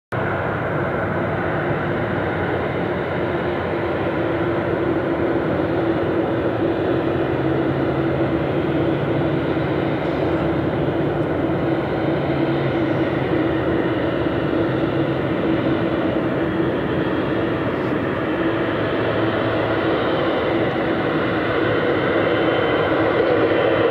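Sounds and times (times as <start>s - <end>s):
jet engines rumbling at low power: 0.1s - 23.9s.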